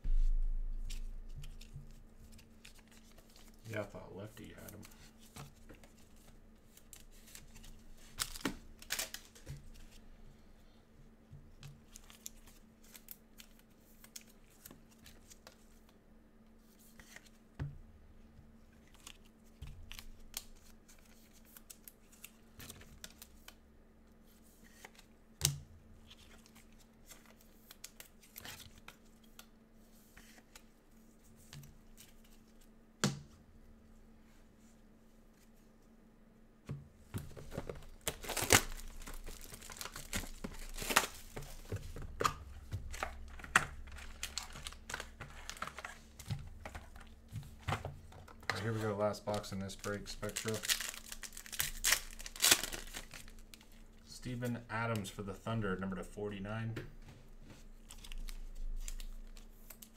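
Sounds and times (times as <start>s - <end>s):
cards rustling: 0.8s - 10.0s, 37.2s - 55.2s
foil wrappers crinkling: 37.4s - 41.8s, 42.9s - 47.1s, 48.2s - 53.8s.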